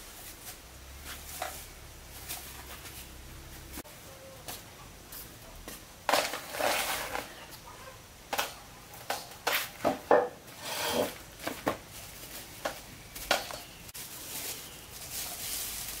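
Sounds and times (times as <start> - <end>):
wooden stool knocking on concrete: 9.8 - 10.4.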